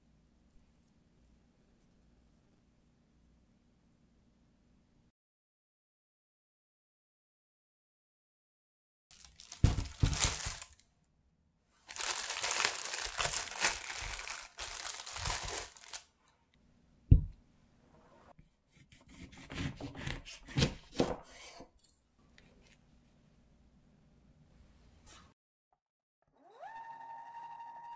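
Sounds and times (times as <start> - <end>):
plastic bag crinkling: 9.1 - 10.8, 11.8 - 16.1
knife cutting orange on wood board: 18.7 - 21.7.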